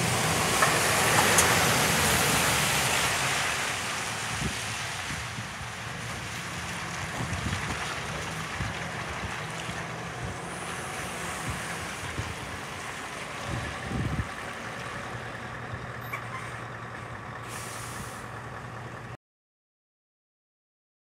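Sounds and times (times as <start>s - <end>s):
diesel truck engine low revs: 0.0s - 19.2s
wind buffeting microphone: 4.2s - 10.6s, 11.2s - 14.5s
air brake hiss: 17.4s - 18.3s.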